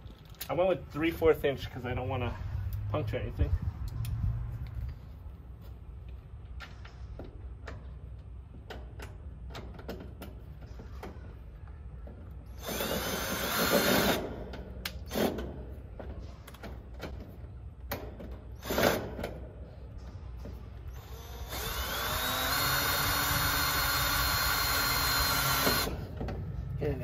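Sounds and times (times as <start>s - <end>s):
cordless drill driving screws: 12.5s - 14.2s, 20.9s - 26.0s.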